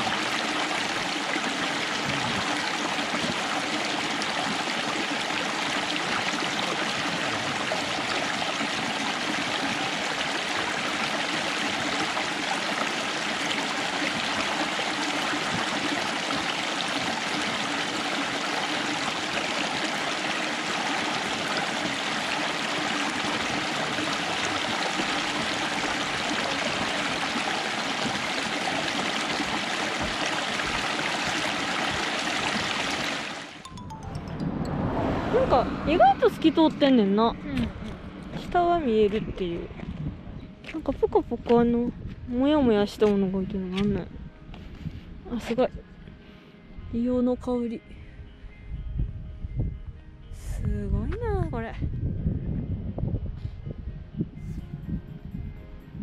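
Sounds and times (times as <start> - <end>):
water rushing over rocks: 0.0 - 33.8.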